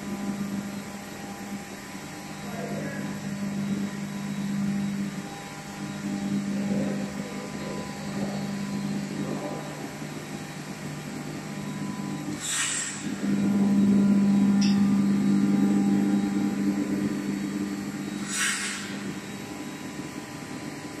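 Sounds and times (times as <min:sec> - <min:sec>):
industrial machines humming: 0:00.0 - 0:21.0
short hisses: 0:18.2 - 0:18.9.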